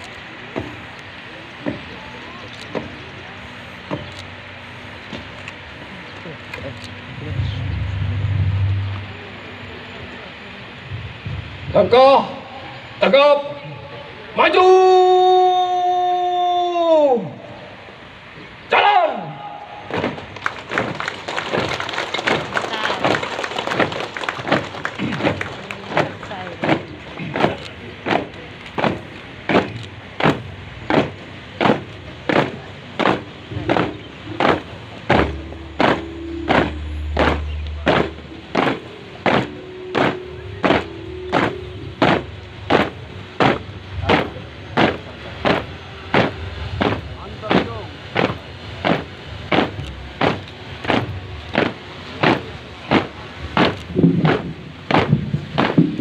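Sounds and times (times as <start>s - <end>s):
steady low hum: 0.0s - 13.0s
boots stamping on pavement: 24.5s - 56.0s.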